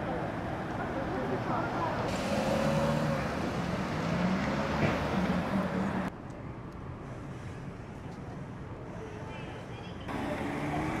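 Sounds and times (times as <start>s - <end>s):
quiet street background: 0.0s - 11.0s
car driving past: 2.0s - 6.1s.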